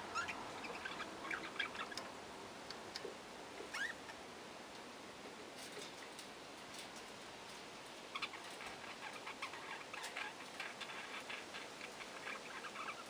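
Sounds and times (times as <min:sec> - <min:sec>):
budgerigars chattering: 0:00.1 - 0:02.0.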